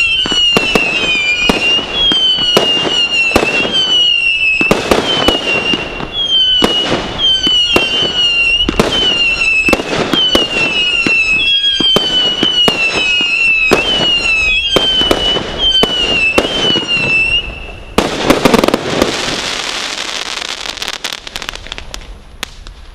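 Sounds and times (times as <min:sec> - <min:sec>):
firework falling whistle: 0:00.0 - 0:20.6
firework bangs and pops: 0:00.0 - 0:22.9
firework crackling burst: 0:00.0 - 0:22.9.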